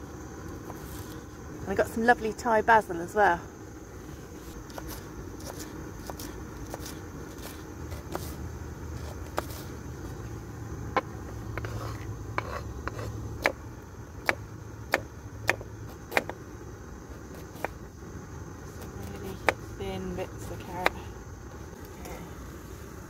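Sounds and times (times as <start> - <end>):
low steady rumble: 0.0 - 23.0.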